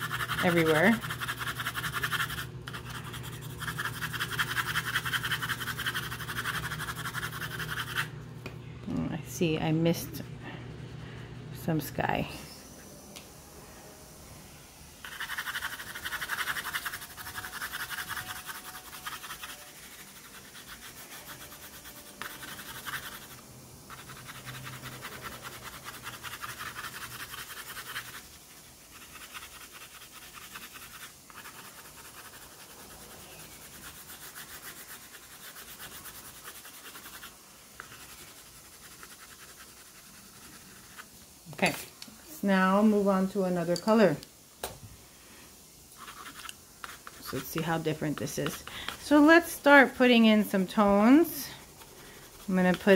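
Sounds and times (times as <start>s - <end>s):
oil pastel scratching on paper: 0.0s - 8.1s, 15.0s - 41.8s, 46.0s - 50.1s, 51.2s - 52.9s.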